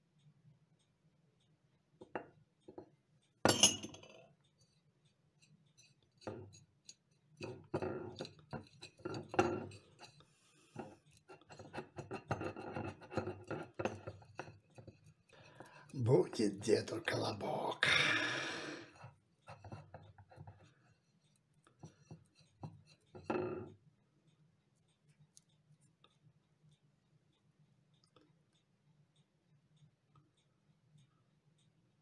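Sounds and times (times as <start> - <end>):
fingers kneading dough against glass: 4.2 - 17.8, 18.8 - 32.0
metal spoon scraping glass dish: 5.4 - 15.9.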